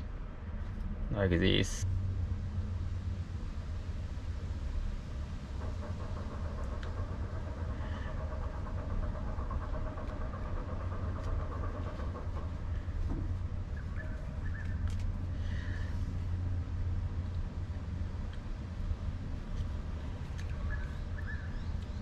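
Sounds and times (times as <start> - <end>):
steady low rumble: 0.0 - 22.0
faint clicks: 5.5 - 15.3, 19.5 - 21.0.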